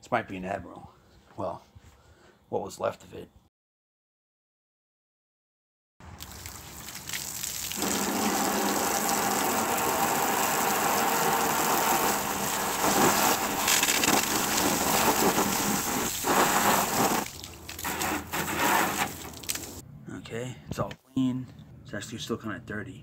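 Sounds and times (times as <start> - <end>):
water jet splashing on plastic: 6.2 - 19.8.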